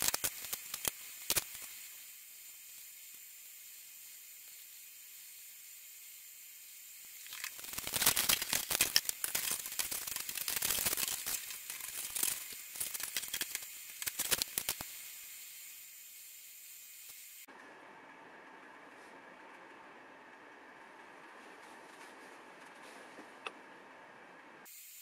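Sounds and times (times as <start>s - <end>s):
aluminium foil crinkling: 0.0s - 1.7s, 7.2s - 14.9s.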